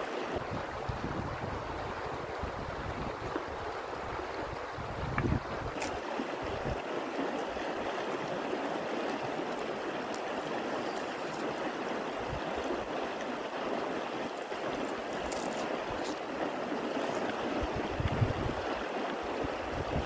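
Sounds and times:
river rushing over stones: 0:00.0 - 0:20.0.

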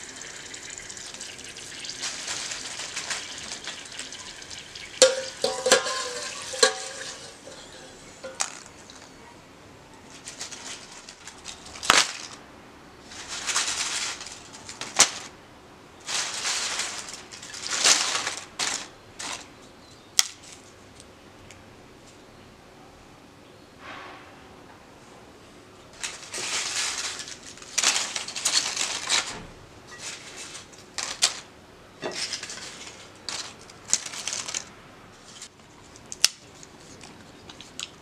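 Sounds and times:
potato slices sizzling in oil: 0:00.0 - 0:08.3
wire skimmer clinking on pot: 0:00.0 - 0:09.1
paper towel rustling: 0:01.8 - 0:08.3, 0:13.0 - 0:15.3, 0:16.0 - 0:19.5, 0:26.0 - 0:31.5.

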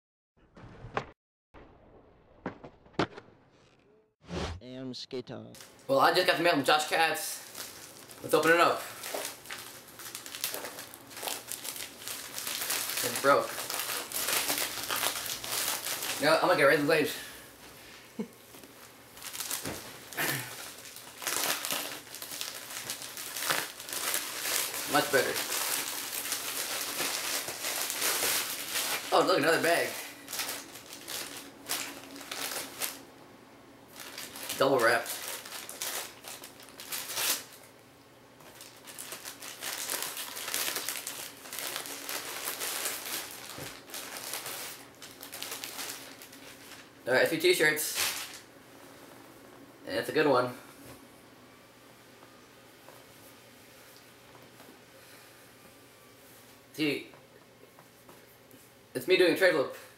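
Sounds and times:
plastic bag crinkling: 0:07.3 - 0:17.2, 0:18.6 - 0:33.0, 0:33.9 - 0:37.7, 0:38.4 - 0:47.0.

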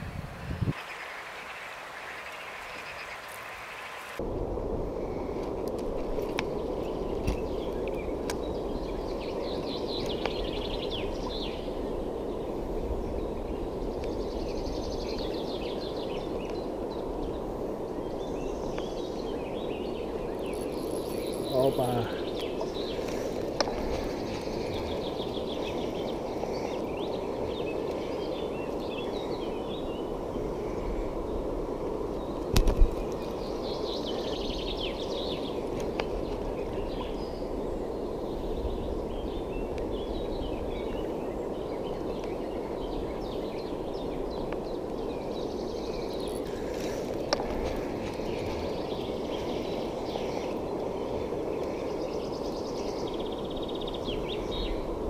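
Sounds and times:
small birds chirping: 0:00.0 - 0:04.2, 0:06.1 - 0:55.0
river running over stones: 0:00.7 - 0:04.2.

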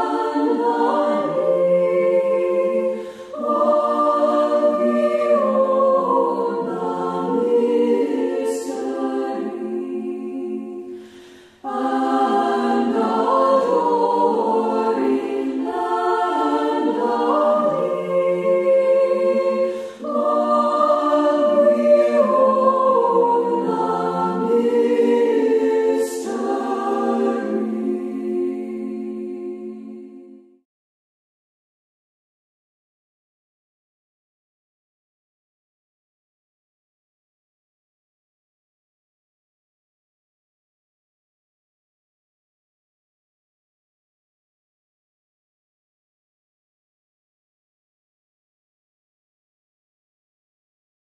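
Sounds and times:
unaccompanied choral singing: 0:00.0 - 0:30.6.

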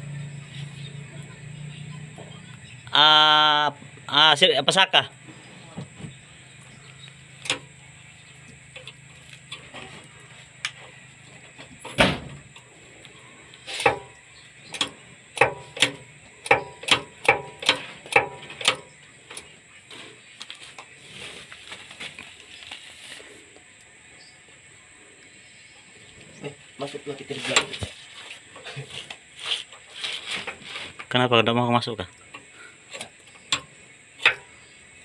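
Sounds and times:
low hum: 0:00.0 - 0:03.0
heavy thump: 0:11.9 - 0:12.5
metal knocks and clicks: 0:13.8 - 0:19.5.

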